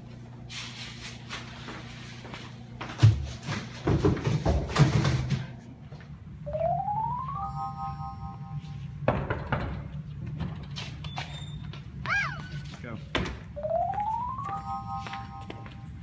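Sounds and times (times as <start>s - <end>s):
background music: 6.5s - 8.7s
rising electronic tone: 6.5s - 8.9s.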